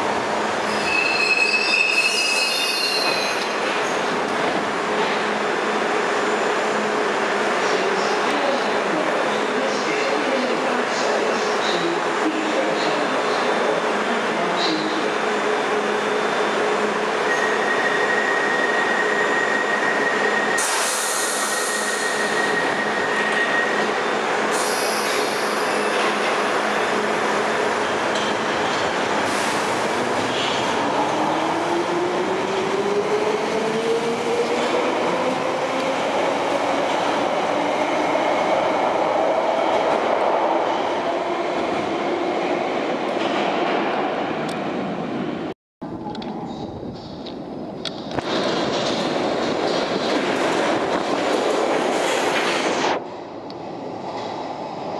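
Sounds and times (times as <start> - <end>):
wheel squeal: 0.7 - 3.5.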